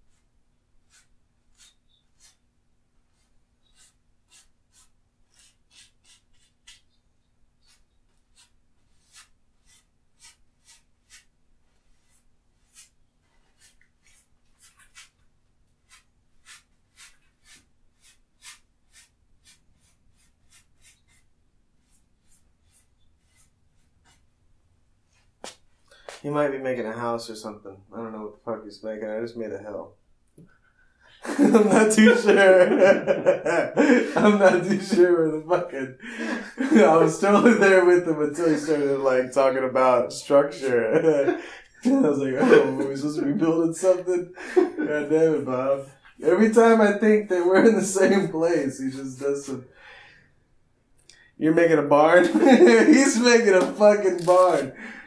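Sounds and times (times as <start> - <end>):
brush scratching on canvas: 0.0 - 2.4, 3.1 - 7.0, 7.6 - 24.3.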